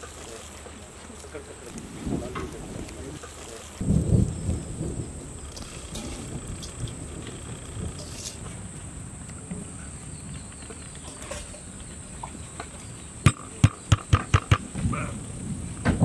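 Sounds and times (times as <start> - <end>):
low rumbling: 3.8 - 16.0
sharp knocks of metal pot: 13.3 - 14.7.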